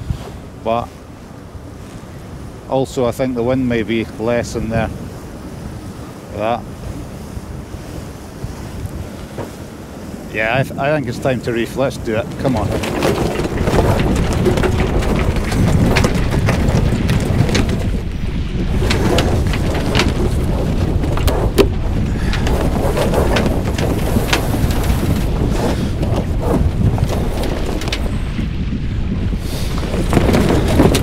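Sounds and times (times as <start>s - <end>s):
water rushing along hull: 0.0s - 31.0s
wind buffeting microphone: 0.0s - 31.0s
knocks and clicks: 12.4s - 28.1s.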